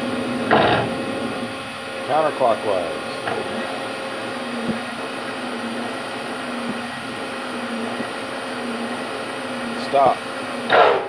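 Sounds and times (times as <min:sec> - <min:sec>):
spindle motor hum: 0:00.0 - 0:11.0.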